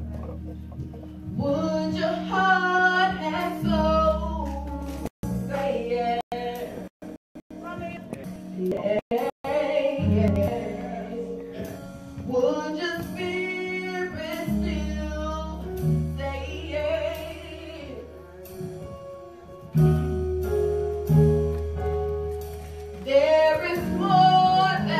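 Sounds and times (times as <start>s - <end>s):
band accompaniment with bass: 0.0s - 24.9s
woman singing with vibrato: 1.4s - 4.8s, 8.6s - 11.4s, 23.1s - 24.9s.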